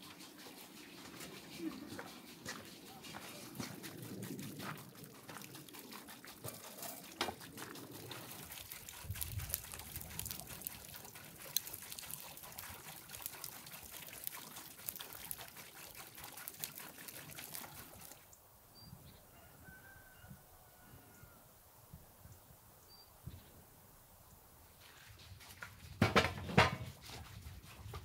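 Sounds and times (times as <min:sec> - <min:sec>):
wood fire crackling: 0:04.6 - 0:18.2.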